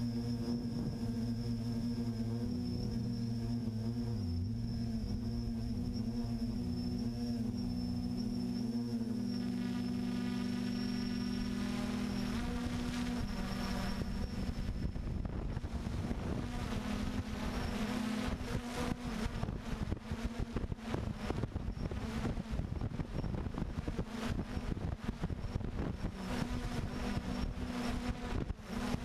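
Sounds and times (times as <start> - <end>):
drone propellers buzzing: 0.0 - 29.0
wind on microphone: 11.4 - 29.0.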